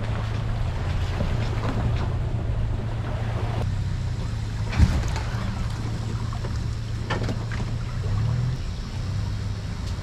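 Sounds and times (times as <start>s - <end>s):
truck engine running: 0.0s - 10.0s.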